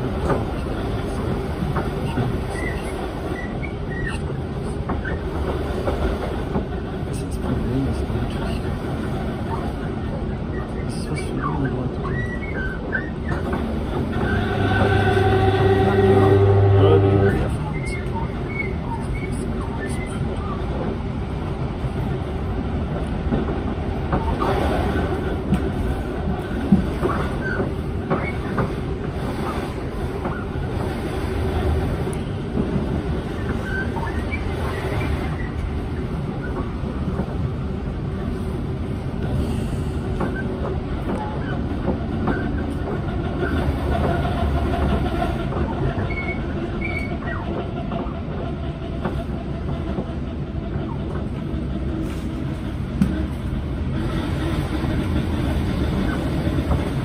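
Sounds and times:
train wheels rumbling on rails: 0:00.0 - 0:57.0
high wheel squeals: 0:12.1 - 0:20.2.

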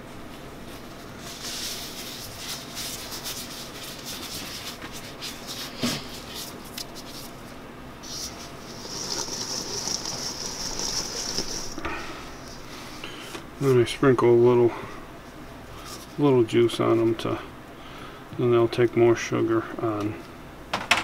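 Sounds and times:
rustling: 0:00.3 - 0:13.0
cherries shaken in sugar in bowl: 0:01.2 - 0:07.4, 0:08.0 - 0:11.8.

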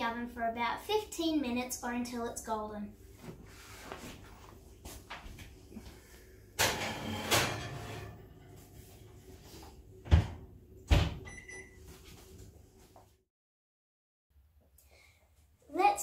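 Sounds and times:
baking dish sliding into oven: 0:06.6 - 0:08.7.

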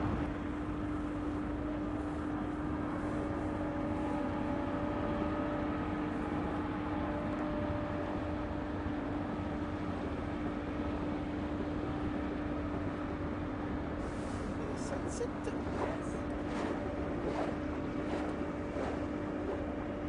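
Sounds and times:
low wind: 0:00.0 - 0:20.0
motorboat engine drone: 0:00.0 - 0:20.0
water noise: 0:14.0 - 0:20.0.

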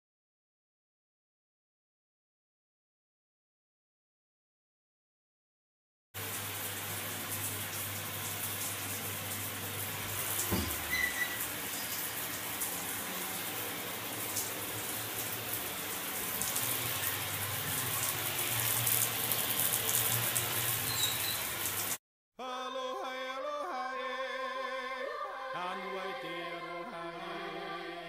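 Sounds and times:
shower water spraying: 0:06.2 - 0:22.0.

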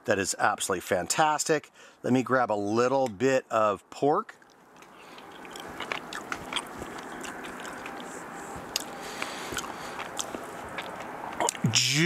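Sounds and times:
person chewing food: 0:04.4 - 0:11.6.

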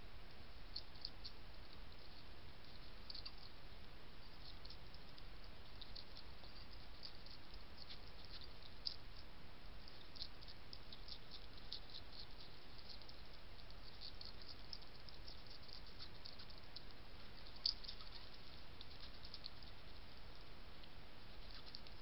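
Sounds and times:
faint steady hiss: 0:00.0 - 0:22.0
hedgehog crunching dry kibble: 0:04.4 - 0:20.4.

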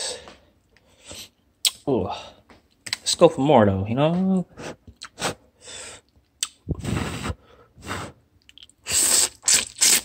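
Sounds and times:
person chewing noodles: 0:08.0 - 0:10.0.

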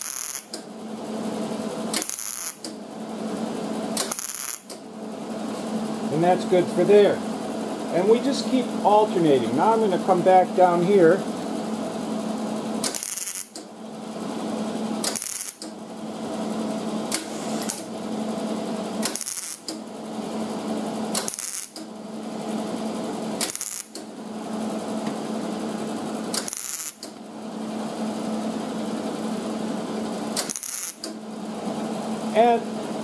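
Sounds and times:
welding arc crackling: 0:00.0 - 0:00.6, 0:01.9 - 0:02.7, 0:03.9 - 0:04.8, 0:12.8 - 0:13.6, 0:15.0 - 0:15.7, 0:17.1 - 0:18.0, 0:19.0 - 0:19.8, 0:21.1 - 0:21.9, 0:23.4 - 0:24.0, 0:26.3 - 0:27.2, 0:30.4 - 0:31.1
welder low hum: 0:00.0 - 0:33.0.

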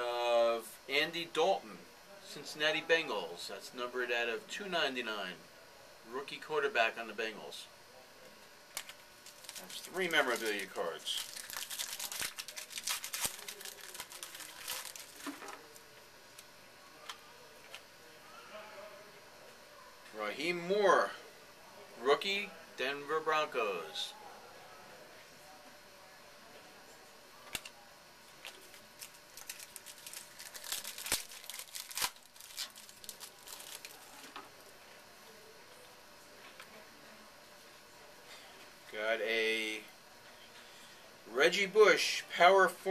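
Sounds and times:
cards and wrapper rustling: 0:08.7 - 0:15.8, 0:28.4 - 0:34.3.

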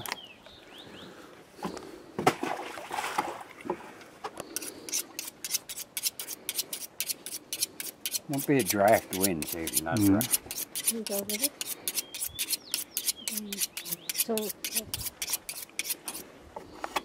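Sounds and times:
knife scraping on honing rod: 0:04.5 - 0:17.0.

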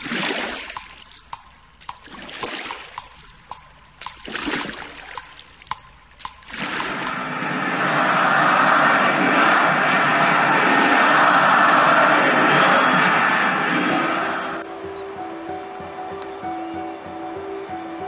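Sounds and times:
sharp ticks: 0:00.0 - 0:07.2
whooshes: 0:06.6 - 0:14.7
rushing roar: 0:07.2 - 0:14.7.

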